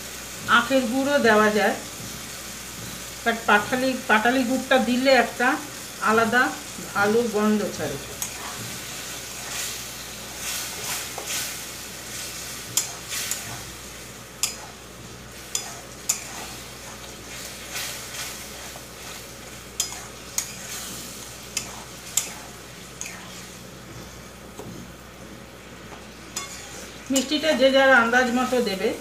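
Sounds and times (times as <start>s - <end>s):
chutney sizzling in a pan: 0.0s - 29.0s
spatula scraping and tapping pan: 7.9s - 13.8s, 14.4s - 24.9s, 25.9s - 27.5s.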